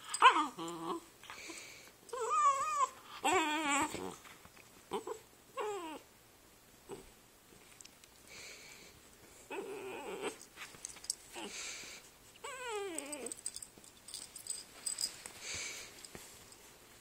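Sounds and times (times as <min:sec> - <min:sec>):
puppies whining and grumbling: 0:00.0 - 0:01.1, 0:02.1 - 0:04.2, 0:04.9 - 0:06.1, 0:09.4 - 0:10.5, 0:12.4 - 0:13.7.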